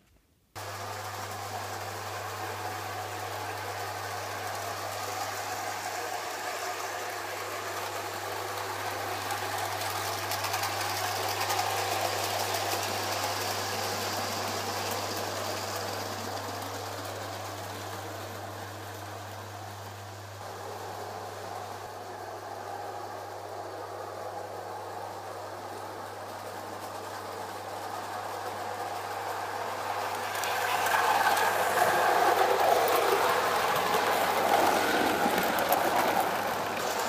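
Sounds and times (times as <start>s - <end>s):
model train rattling rumble: 0.6s - 37.0s.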